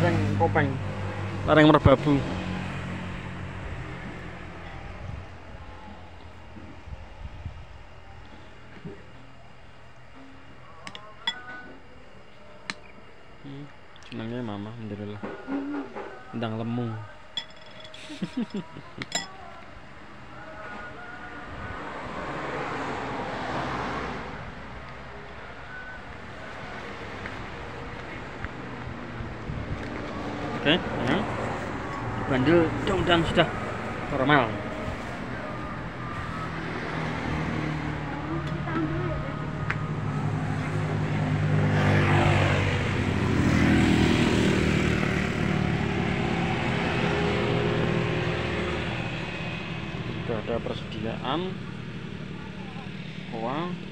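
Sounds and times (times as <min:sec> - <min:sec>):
vehicle passing: 0:00.0 - 0:06.0, 0:21.7 - 0:24.6, 0:26.3 - 0:53.9
car engine running: 0:00.0 - 0:07.1, 0:26.2 - 0:53.9.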